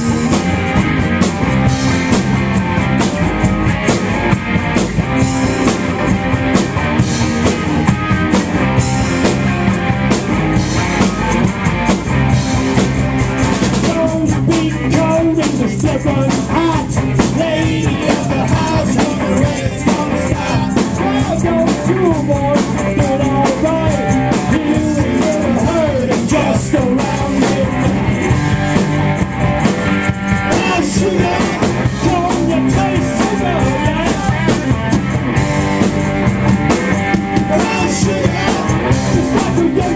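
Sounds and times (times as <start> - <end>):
drum kit: 0.0 - 39.9
electric guitars: 0.0 - 39.9.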